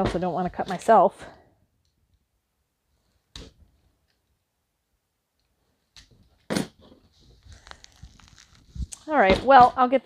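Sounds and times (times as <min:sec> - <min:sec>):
plastic wrap crinkling: 0:07.1 - 0:09.2.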